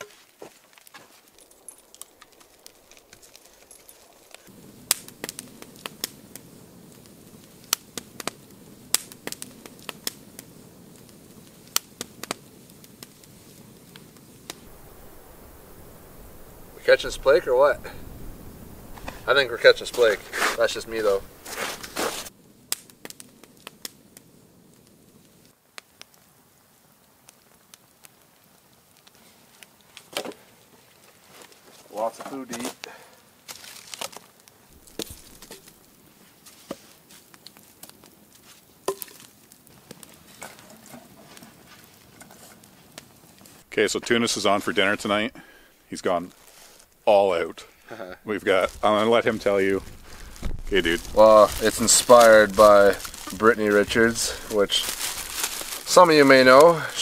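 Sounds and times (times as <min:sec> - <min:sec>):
campfire crackling and popping: 0:00.0 - 0:57.0
faint outdoor background noise: 0:00.0 - 0:57.0
kindling snapping as it is lit: 0:00.7 - 0:15.2, 0:15.9 - 0:26.2, 0:32.3 - 0:36.0, 0:48.5 - 0:56.8.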